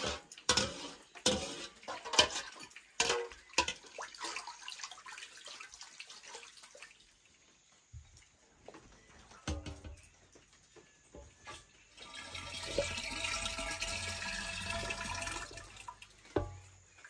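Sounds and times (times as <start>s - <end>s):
metal spoon clinking in metal pot: 0.0s - 3.8s
liquid splashing and dripping: 0.3s - 8.4s.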